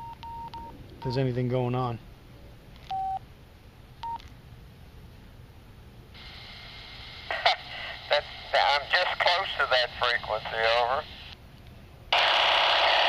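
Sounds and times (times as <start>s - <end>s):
radio keypad beeps: 0.0s - 1.2s, 2.9s - 3.2s, 4.0s - 4.2s
received radio bursts: 6.2s - 11.3s
radio speaker hiss: 6.2s - 11.4s.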